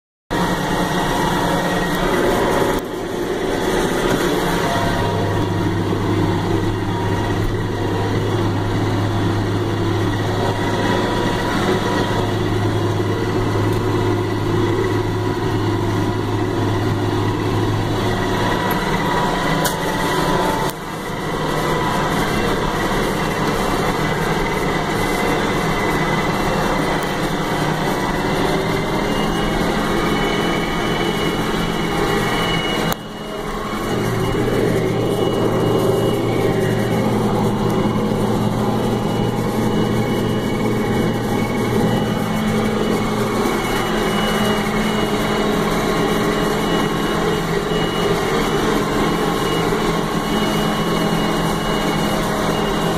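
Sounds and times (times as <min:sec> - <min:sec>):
deep steady hum: 0:00.3 - 0:52.9
tractor diesel engine running: 0:00.3 - 0:52.9.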